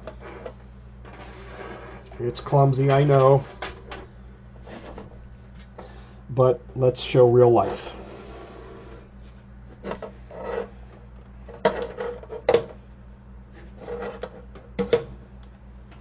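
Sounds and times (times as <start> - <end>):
cable rubbing and scraping: 0.0 - 3.6, 4.6 - 5.2, 7.6 - 12.4, 13.5 - 14.5.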